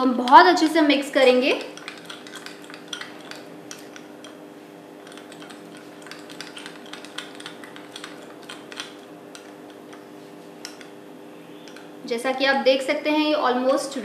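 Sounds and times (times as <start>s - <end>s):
steady hum: 0.0s - 14.0s
spoon scraping glass bowl: 1.1s - 12.0s.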